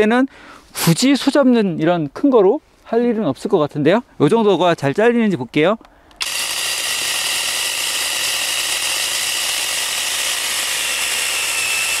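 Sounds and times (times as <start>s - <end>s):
chain rasping through wood: 6.2s - 12.0s
electric chainsaw motor whine: 6.2s - 12.0s.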